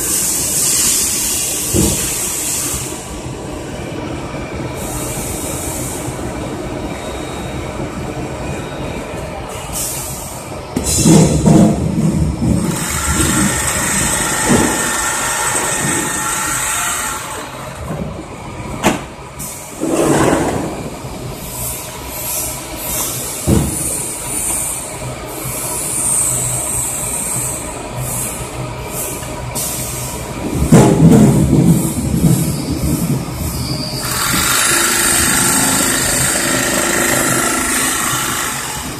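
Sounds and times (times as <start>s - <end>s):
machine rattle and hum: 10.9s - 18.2s, 34.0s - 38.9s.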